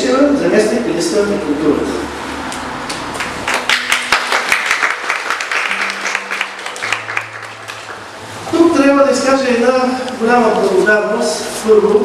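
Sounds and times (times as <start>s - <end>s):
audience applauding: 2.9s - 8.4s.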